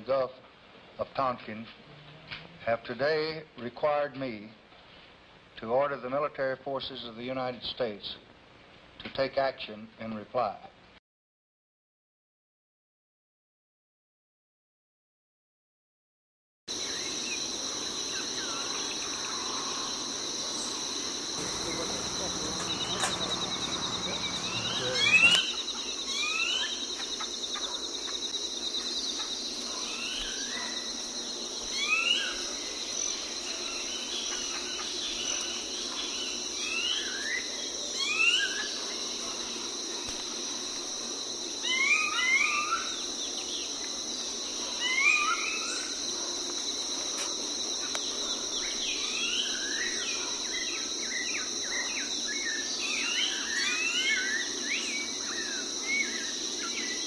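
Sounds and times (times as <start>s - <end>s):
insects trilling: 16.7s - 57.0s
rising bird chirps: 20.6s - 27.7s.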